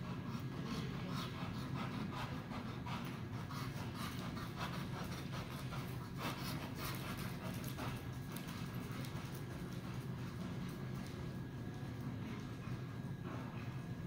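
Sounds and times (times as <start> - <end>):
steady low hum: 0.0 - 14.0
horse hooves on sand: 3.0 - 14.0.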